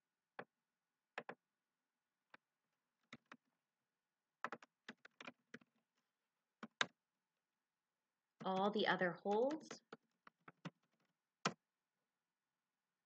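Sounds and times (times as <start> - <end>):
keyboard keystrokes: 8.4 - 11.6.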